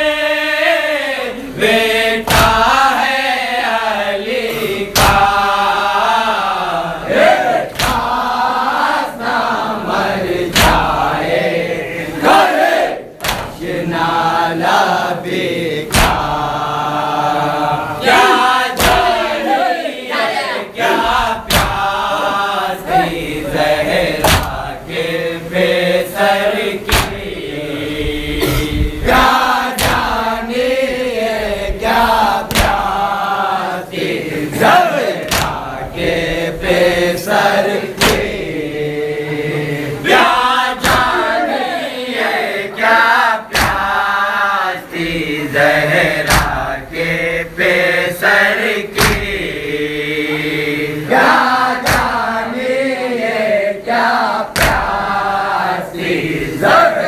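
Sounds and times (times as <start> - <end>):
men chanting in unison: 0.0 - 57.0
hands beating on chests: 13.2 - 13.6, 15.9 - 16.4, 18.8 - 19.4, 21.5 - 21.9, 24.2 - 24.6, 26.9 - 27.4, 32.5 - 32.9, 35.3 - 35.7, 40.8 - 41.2, 43.5 - 44.0, 46.2 - 46.6, 49.0 - 49.4, 51.8 - 52.2, 54.5 - 55.0.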